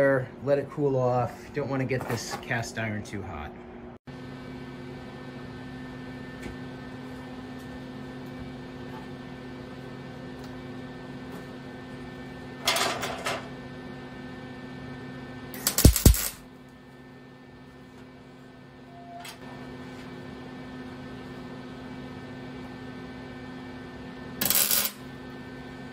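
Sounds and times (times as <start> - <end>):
electrical hum: 0.0 - 25.9
welding arc crackle: 15.5 - 16.4, 24.4 - 25.1.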